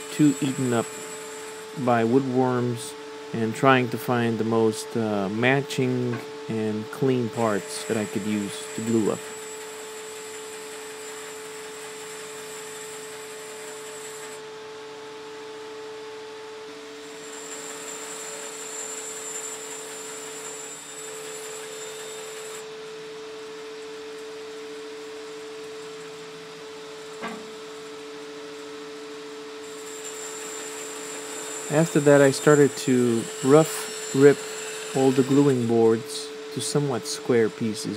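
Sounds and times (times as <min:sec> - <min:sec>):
bandsaw humming: 0:00.0 - 0:37.9
high hiss of blade cutting wood: 0:29.6 - 0:37.3.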